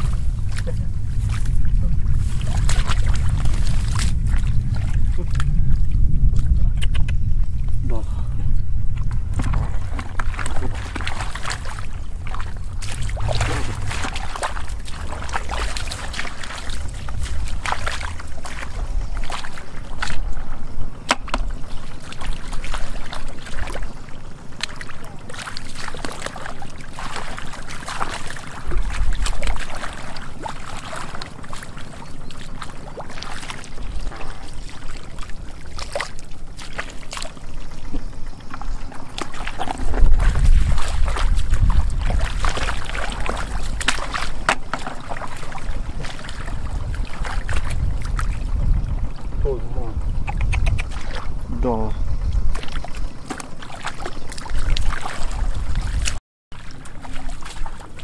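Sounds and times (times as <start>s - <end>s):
hands splashing in muddy water: 0.0s - 5.6s, 8.9s - 49.5s, 50.3s - 51.4s, 52.2s - 58.0s
low rumble: 0.0s - 20.9s.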